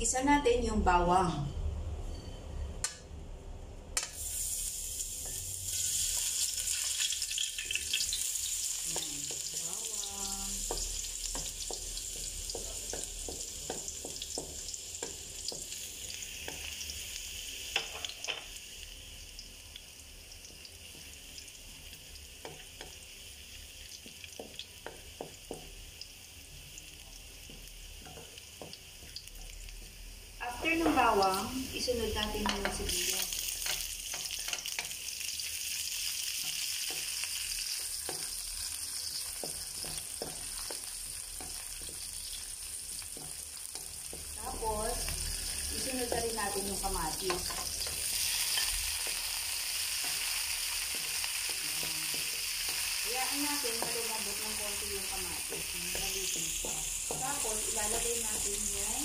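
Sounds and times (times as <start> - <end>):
garlic sizzling in hot oil: 4.0 - 59.0
wooden spatula tapping a wok: 8.8 - 9.6, 10.5 - 16.8, 17.7 - 18.5, 22.4 - 23.0, 24.0 - 26.0, 27.0 - 29.2, 32.2 - 33.0, 36.4 - 44.6, 50.0 - 58.9.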